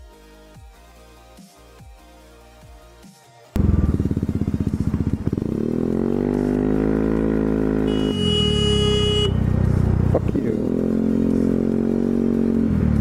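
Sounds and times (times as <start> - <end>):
scooter engine accelerating: 3.6 - 13.0.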